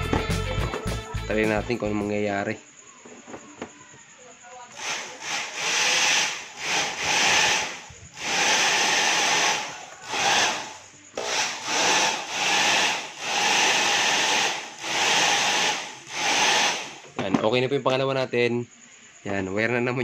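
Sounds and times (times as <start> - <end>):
hair dryer running in bursts: 4.8 - 16.9.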